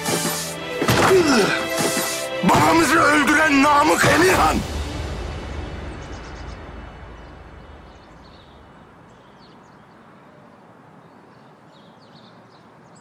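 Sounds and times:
low rumble: 0:04.6 - 0:09.2
bird chirps: 0:06.0 - 0:13.0.

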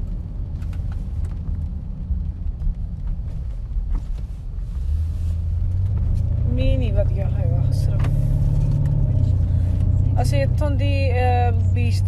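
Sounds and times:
car driving rumble: 0:00.0 - 0:12.0.

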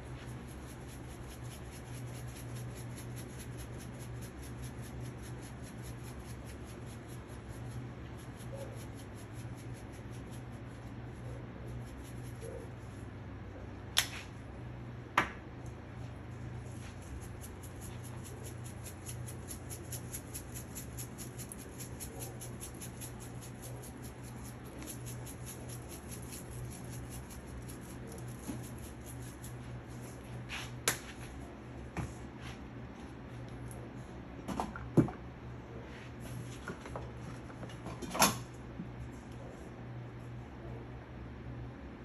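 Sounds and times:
spice shaker rattling: 0:00.2 - 0:10.6, 0:16.6 - 0:30.2.

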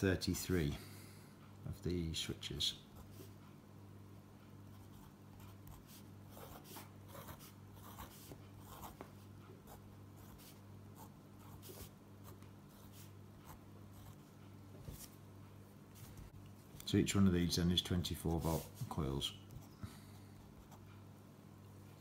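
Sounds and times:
low steady hum: 0:00.0 - 0:22.0
pen scratching on paper: 0:04.7 - 0:14.2.

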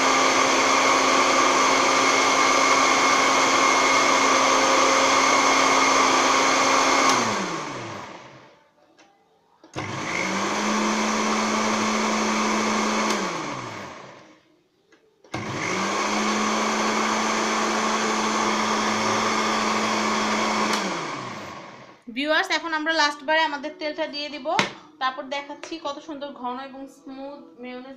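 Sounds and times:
blender motor whirring: 0:00.0 - 0:08.5, 0:09.7 - 0:14.3, 0:15.3 - 0:22.0.

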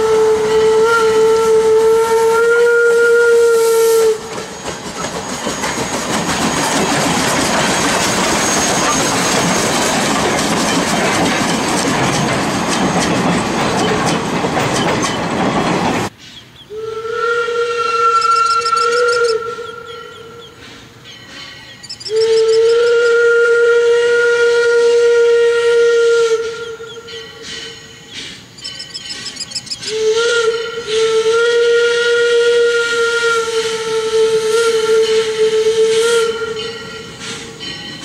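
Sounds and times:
steam locomotive whistle: 0:00.0 - 0:05.9, 0:16.6 - 0:20.6, 0:21.2 - 0:37.9
train wheels clattering on rails: 0:04.1 - 0:16.2, 0:26.8 - 0:30.0, 0:36.3 - 0:38.0.

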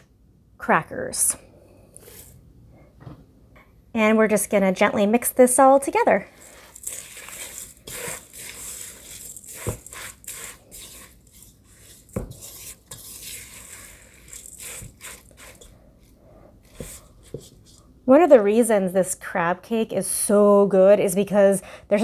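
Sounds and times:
spatula squishing wet mixture: 0:06.2 - 0:17.9.

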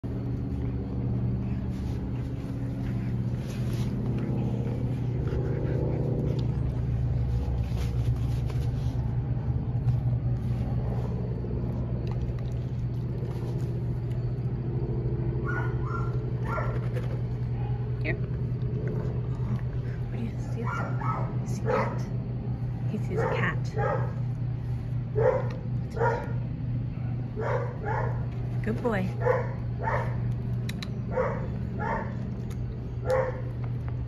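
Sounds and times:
dog growling low: 0:17.4 - 0:22.1.

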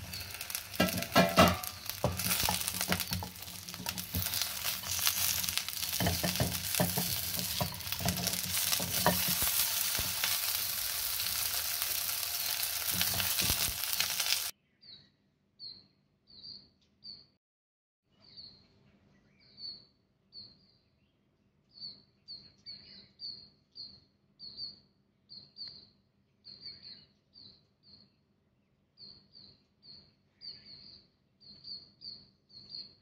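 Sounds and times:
small bird chirping: 0:00.0 - 0:17.4, 0:28.9 - 0:33.0.

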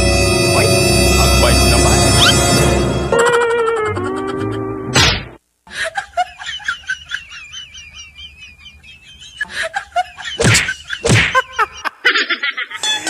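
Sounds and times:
high warbling chirps: 0:00.0 - 0:04.0.

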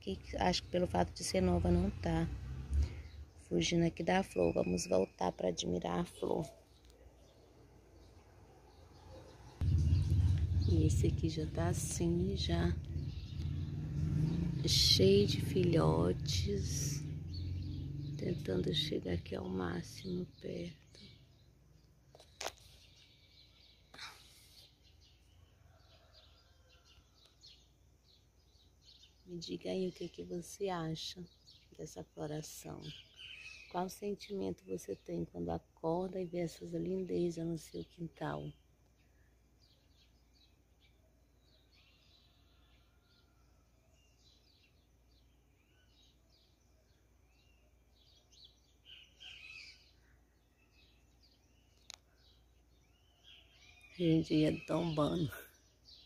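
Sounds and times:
distant birds chirping: 0:00.0 - 0:56.0
birds chirping and whistling: 0:08.8 - 0:21.5, 0:32.8 - 0:33.8, 0:47.3 - 0:56.0
brief rustle: 0:22.1 - 0:23.1.

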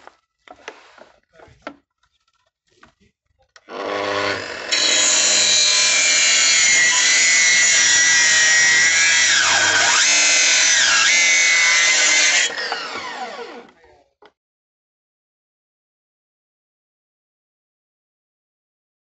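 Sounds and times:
circular saw cutting wood: 0:03.7 - 0:13.8
saw winding down whine: 0:03.7 - 0:13.8.

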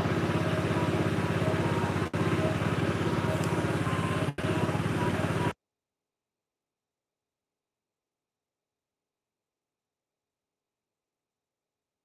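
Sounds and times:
small motorcycle engine running: 0:00.0 - 0:05.6.

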